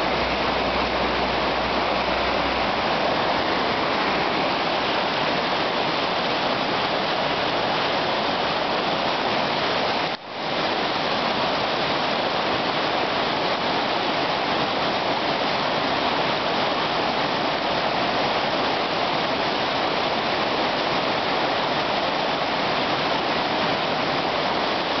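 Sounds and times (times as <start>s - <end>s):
river rushing over rapids: 0.0s - 25.0s.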